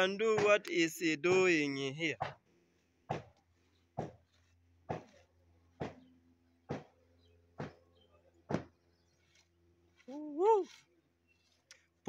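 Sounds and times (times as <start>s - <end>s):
sharp knocks: 3.1s - 3.4s, 4.0s - 4.2s, 4.9s - 5.2s, 6.7s - 7.0s, 7.6s - 7.8s.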